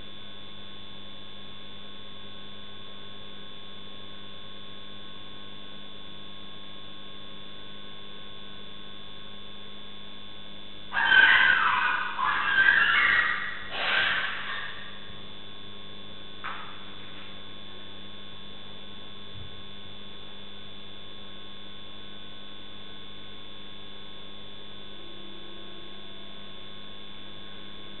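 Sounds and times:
electrical hum: 0.0s - 28.0s
short loud noise: 11.0s - 15.2s.

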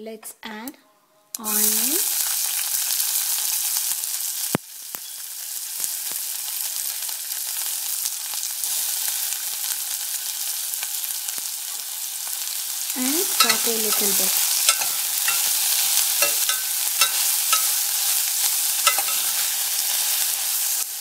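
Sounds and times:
onions sizzling in oil: 1.4s - 21.0s
small popping of oil: 13.4s - 15.6s, 16.2s - 17.8s, 18.9s - 19.5s.

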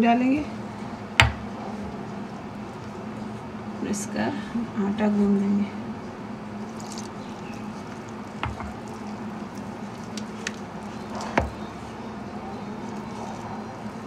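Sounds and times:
steady low hum: 0.0s - 14.0s
hand kneading wet dough: 1.2s - 3.4s, 6.5s - 14.0s.

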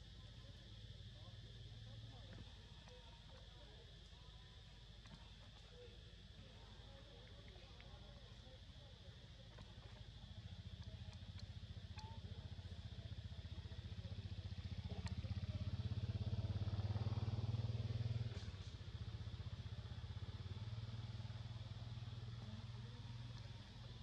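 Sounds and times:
motorcycle engine running: 9.6s - 24.0s.

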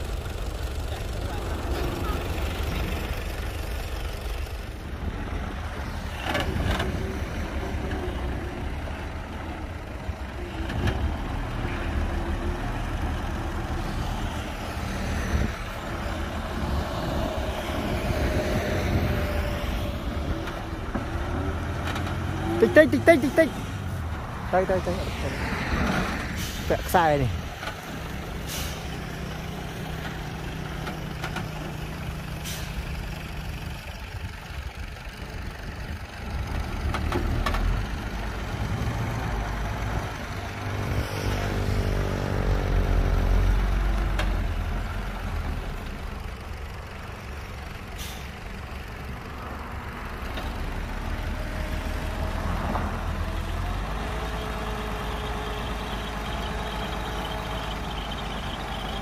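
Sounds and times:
diesel truck engine running: 0.0s - 59.0s
air brake hisses: 26.3s - 26.7s, 28.4s - 29.0s, 32.4s - 32.8s.

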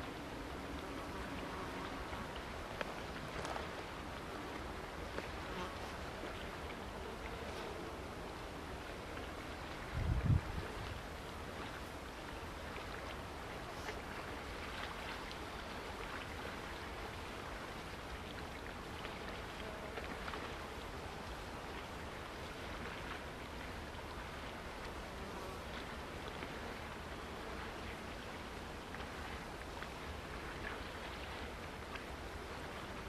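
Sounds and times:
faint light ticks: 0.0s - 3.8s, 11.6s - 16.3s
choppy water: 0.0s - 33.0s
wind: 0.0s - 33.0s.

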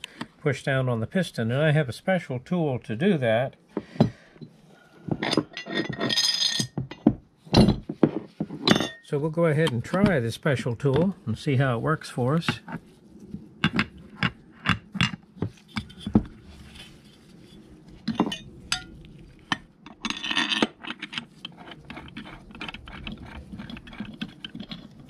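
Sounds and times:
metal parts clinking and knocking: 5.2s - 10.1s, 18.1s - 25.0s.

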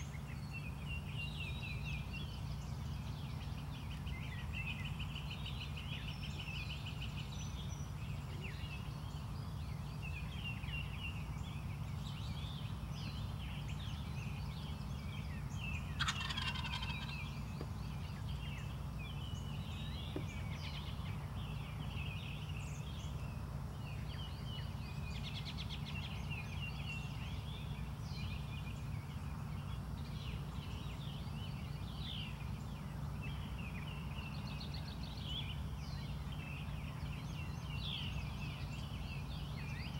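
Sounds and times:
small birds chirping: 0.0s - 39.9s
steady low hum: 0.0s - 39.9s
wild turkey gobbling: 16.0s - 17.3s.

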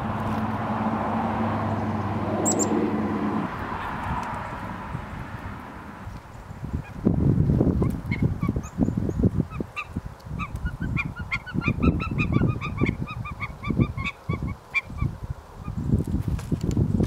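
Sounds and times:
gusty wind on microphone: 0.0s - 17.0s
birds calling: 1.7s - 2.9s, 7.8s - 15.8s.

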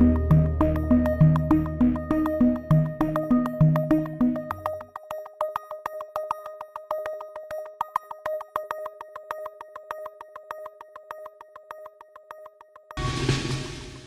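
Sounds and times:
sustained synth tone: 0.0s - 4.5s
electronic music: 0.0s - 4.9s.

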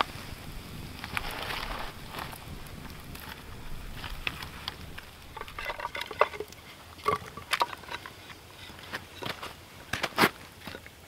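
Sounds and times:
fire crackling: 0.0s - 11.0s
firewood logs knocking: 1.1s - 8.2s.

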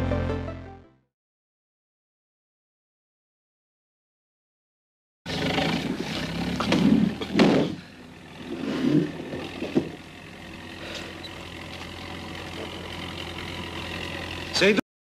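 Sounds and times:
engine droning: 5.3s - 14.8s
clattering: 5.9s - 10.1s
heavy thuds: 6.6s - 7.9s.

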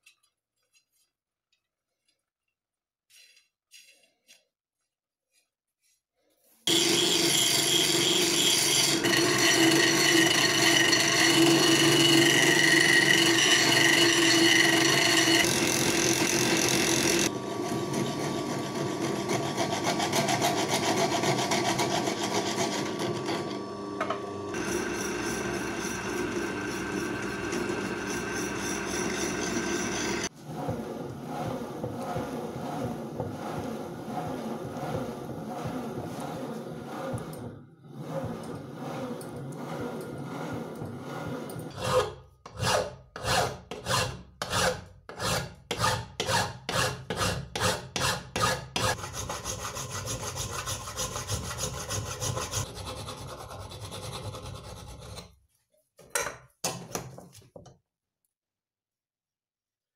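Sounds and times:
file rasping against steel: 3.1s - 4.5s, 6.6s - 17.3s, 24.5s - 55.4s
drill press motor hum: 6.7s - 41.8s.

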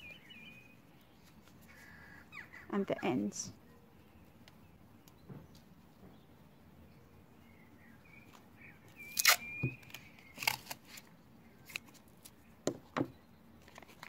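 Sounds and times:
masking tape squealing and ripping: 9.1s - 9.7s
knocks on wooden table: 12.7s - 13.2s.

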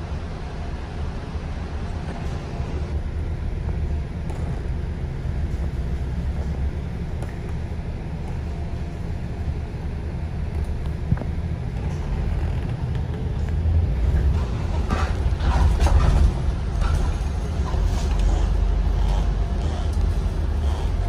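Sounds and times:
bus engine and road rumble: 0.0s - 21.0s.

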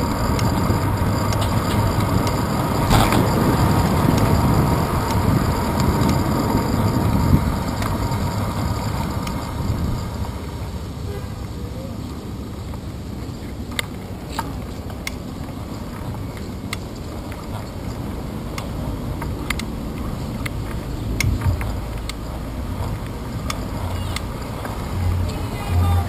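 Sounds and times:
bicycle road rumble: 0.0s - 26.0s
wind: 0.0s - 26.0s
sharp clicks and rattles: 0.1s - 10.4s.

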